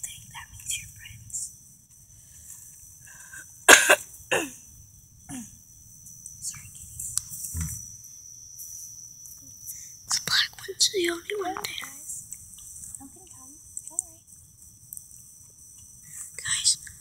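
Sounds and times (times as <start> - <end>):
person coughing: 3.7 - 4.6.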